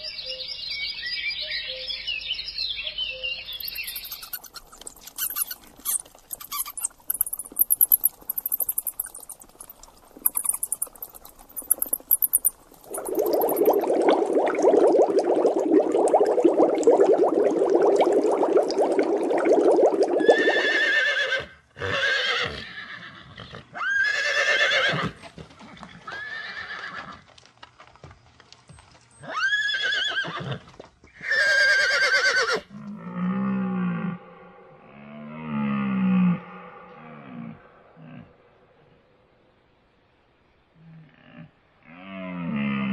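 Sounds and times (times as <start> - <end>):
dense crackling noise: 3.6 - 20.4
horses whinnying: 20.2 - 27.2, 29.2 - 32.7.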